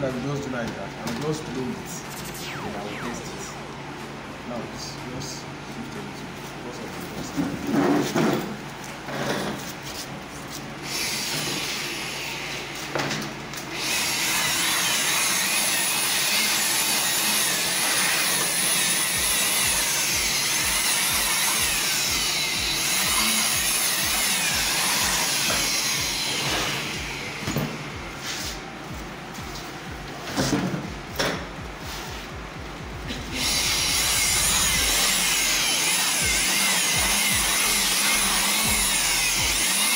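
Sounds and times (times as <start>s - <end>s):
electric blower hissing: 33.1s - 36.4s.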